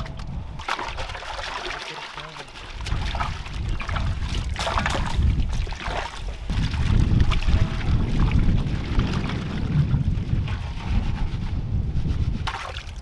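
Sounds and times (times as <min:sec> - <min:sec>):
wind rumble on microphone: 0:00.0 - 0:01.4, 0:02.7 - 0:13.0.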